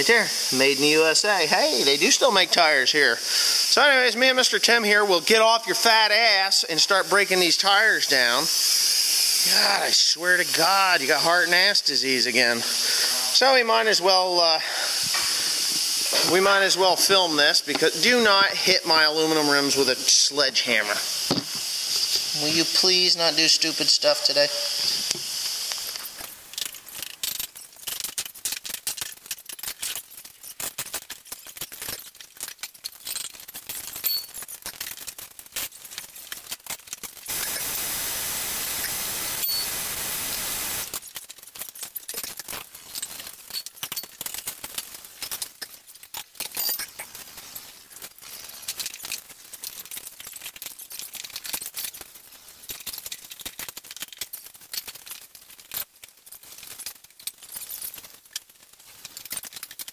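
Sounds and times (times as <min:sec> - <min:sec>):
air hissing: 0:03.2 - 0:03.9, 0:08.0 - 0:11.3, 0:12.6 - 0:13.5, 0:14.5 - 0:18.4, 0:20.9 - 0:26.2, 0:37.3 - 0:40.9.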